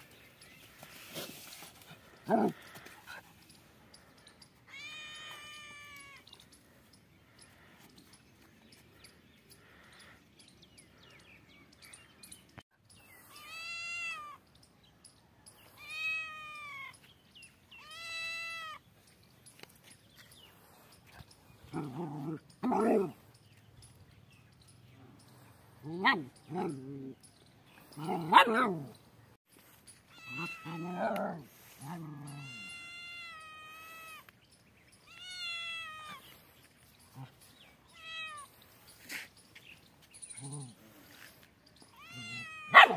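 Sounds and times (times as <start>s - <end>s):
cat meowing: 4.7s - 6.2s, 30.2s - 31.2s, 41.9s - 42.8s
cat yowling: 30.2s - 31.4s, 32.2s - 34.3s, 41.9s - 42.9s.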